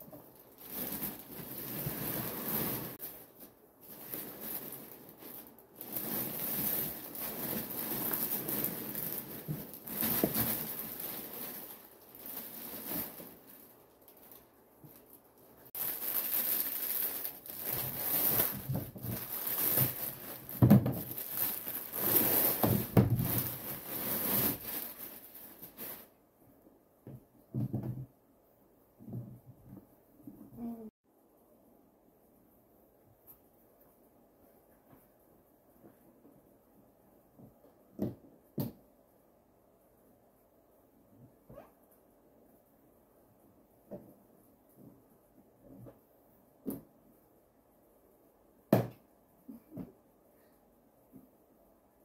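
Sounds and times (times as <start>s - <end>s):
plastic bag crinkling: 0.0s - 26.1s
packing peanuts rustling: 0.1s - 26.1s.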